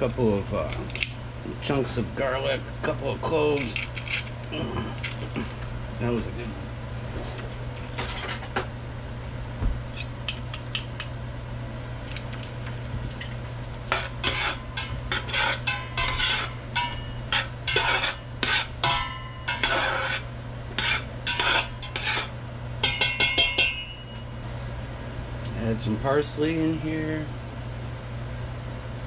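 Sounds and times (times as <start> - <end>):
spoon scraping a metal pot: 13.9 - 23.9.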